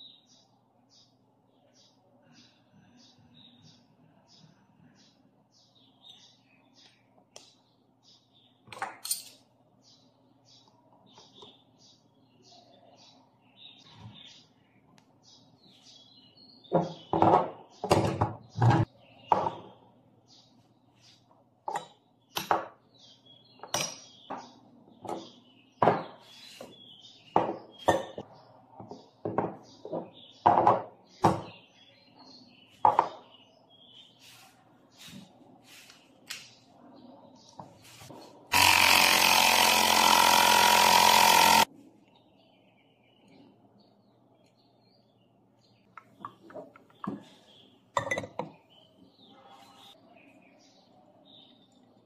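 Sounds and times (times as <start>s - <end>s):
metal and glass clinks and knocks: 8.7s - 9.4s
electric air pump running: 38.5s - 41.7s.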